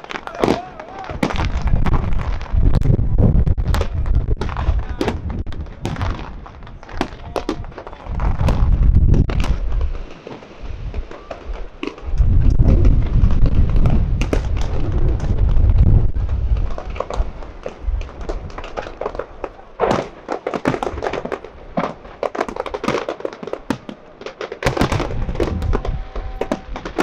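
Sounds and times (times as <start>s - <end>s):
fireworks bangs and crackles: 0.0s - 27.0s
deep rumbling booms: 1.1s - 10.0s, 12.0s - 18.6s, 24.8s - 27.0s.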